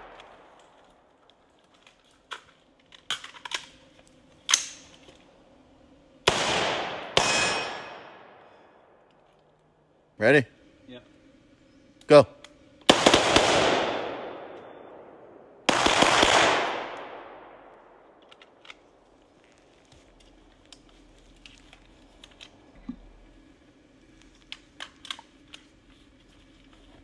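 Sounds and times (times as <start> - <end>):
rapid gunshots with echo: 12.9 - 14.5, 15.7 - 17.3.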